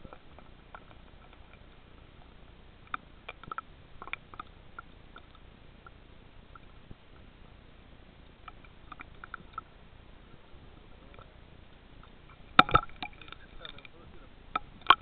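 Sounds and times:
sharp clicks and pips: 2.9 - 6.8, 12.0 - 15.0.

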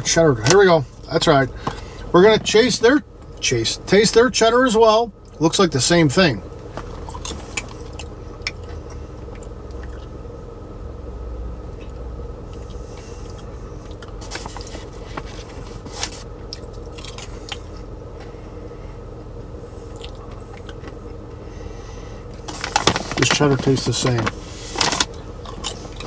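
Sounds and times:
low hum: 0.0 - 26.0
popcorn crunching: 12.5 - 17.7, 22.4 - 26.0
plastic snack bag crinkling: 22.4 - 25.7.

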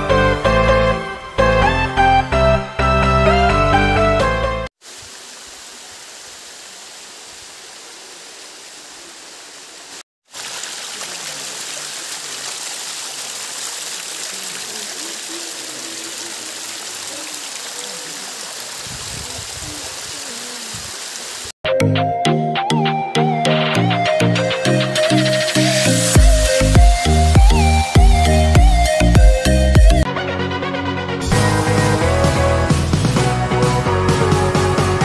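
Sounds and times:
water splashing down rock ledges: 10.2 - 21.5.

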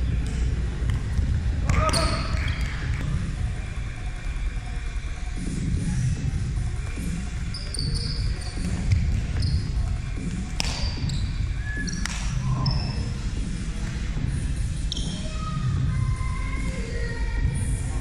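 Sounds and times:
sneakers squeaking: 0.0 - 3.0, 6.8 - 13.4, 14.8 - 15.7
hands smacking a ball: 10.6 - 10.9.

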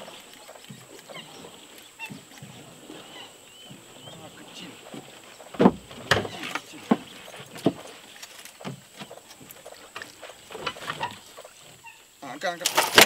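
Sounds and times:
water splashing: 0.0 - 13.0
short knocks: 2.0 - 8.0.

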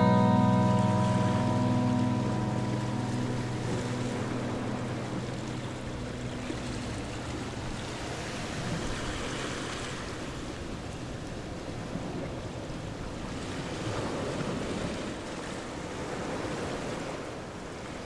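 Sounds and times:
background music: 0.0 - 8.6.

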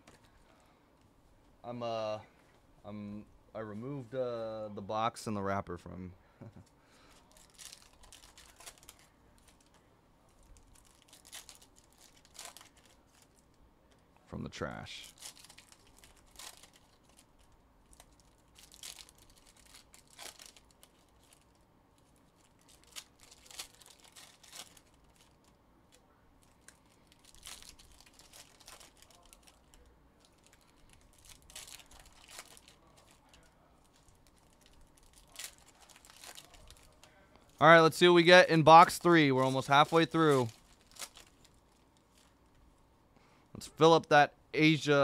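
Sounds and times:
wrappers and cards crinkling: 6.4 - 14.0, 14.6 - 42.8.

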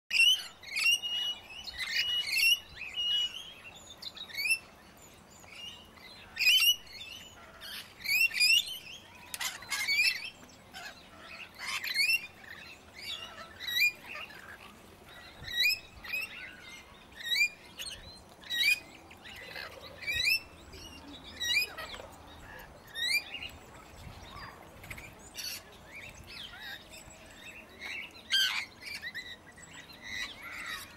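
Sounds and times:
parrots chirping: 9.3 - 17.5.

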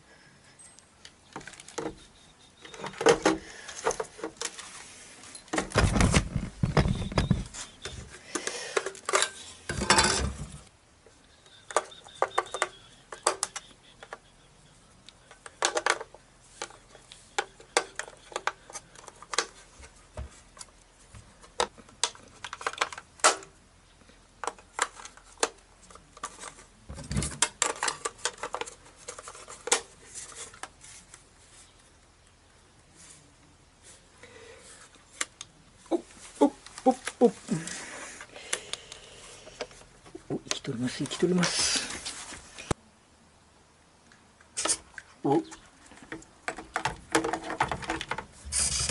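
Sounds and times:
plastic clicks and rattles: 11.5 - 14.3, 15.0 - 20.0, 21.4 - 23.5, 24.4 - 30.7, 45.9 - 48.8.

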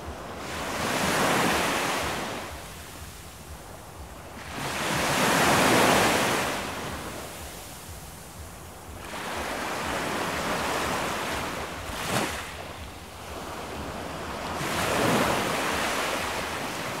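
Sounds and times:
ocean waves washing in: 0.0 - 17.0.

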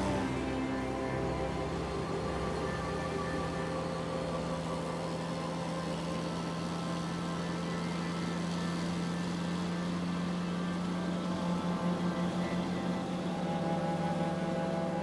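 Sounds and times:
car engine drone: 0.0 - 15.0
road noise inside car: 0.0 - 15.0.

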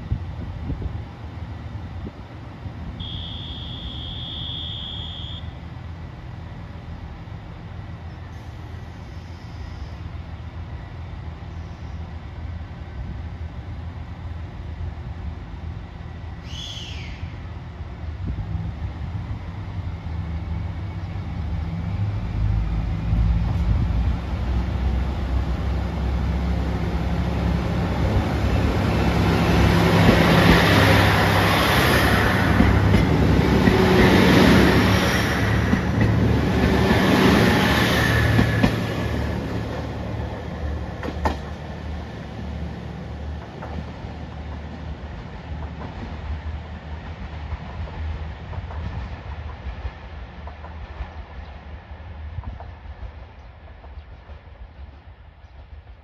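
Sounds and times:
diesel train engine hum: 0.0 - 56.0
train wheels rushing on rails: 0.0 - 56.0.

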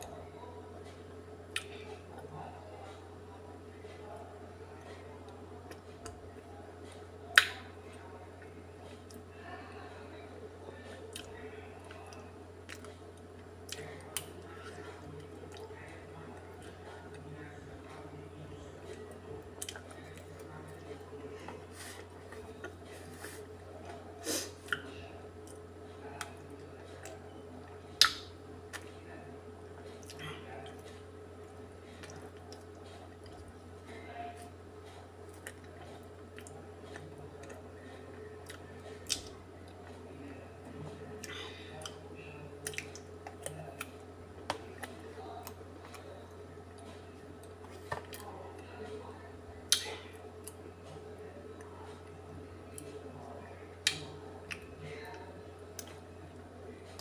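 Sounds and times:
low steady hum: 0.0 - 57.0
mouth eating sounds: 28.0 - 28.9.

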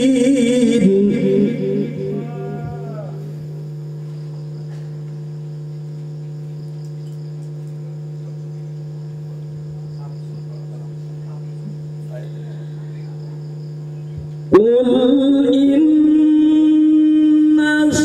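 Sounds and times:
sung note: 0.0 - 3.8
electrical hum and buzz: 0.0 - 18.0.

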